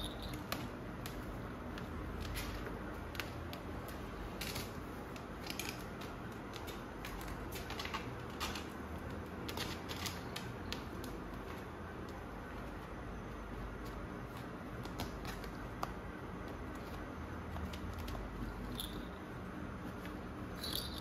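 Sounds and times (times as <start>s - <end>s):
kitten claws scratching mesh: 2.1s - 11.3s.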